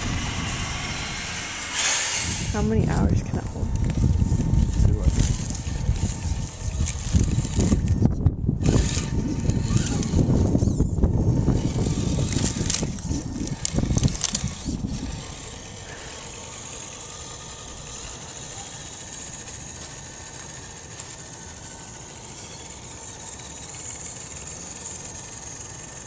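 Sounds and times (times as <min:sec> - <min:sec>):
loud low rumble: 0:00.0 - 0:06.1
electric motor and gears whining: 0:00.0 - 0:26.0.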